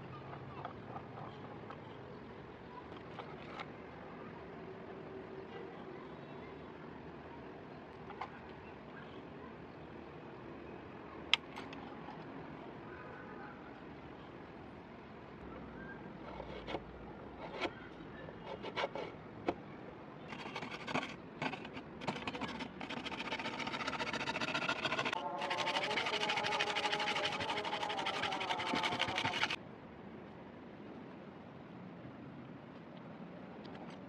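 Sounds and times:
hacksaw cutting: 18.5 - 19.1, 20.3 - 29.6.

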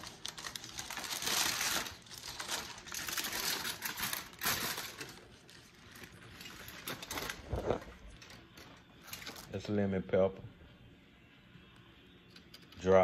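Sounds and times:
food wrapping crinkling: 0.0 - 9.5.

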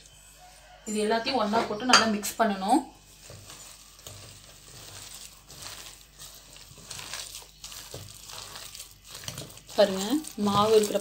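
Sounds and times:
hand squishing batter: 3.1 - 11.0.

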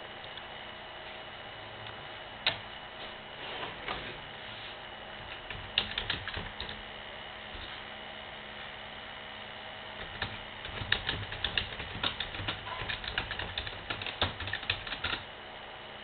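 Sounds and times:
steady electrical hum: 0.0 - 16.0
light rapid clicks and taps: 10.0 - 15.2.

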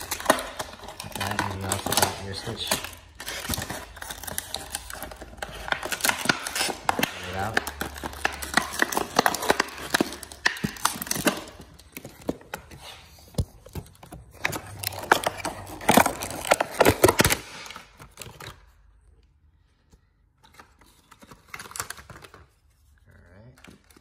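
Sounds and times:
plastic packaging crinkling: 0.0 - 19.2, 20.4 - 24.0.

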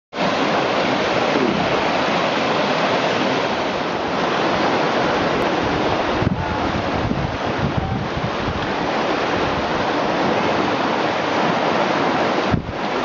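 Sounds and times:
water rushing over rocks: 0.1 - 13.0
wind buffeting microphone: 2.8 - 13.0.

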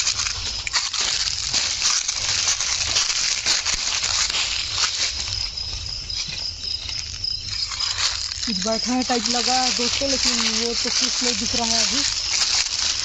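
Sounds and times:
footsteps crunching dry leaves: 0.0 - 13.0
night insects droning: 0.0 - 13.0.

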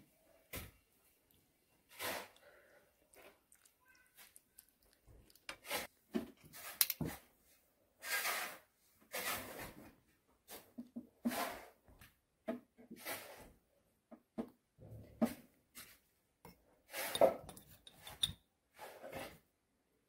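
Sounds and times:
metal spoon scraping frying pan: 16.9 - 19.3.

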